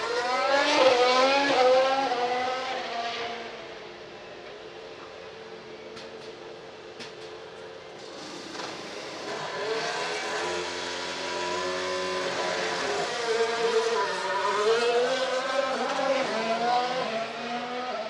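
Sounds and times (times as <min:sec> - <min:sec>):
racing car engine revving: 0:00.0 - 0:03.7, 0:08.0 - 0:18.0.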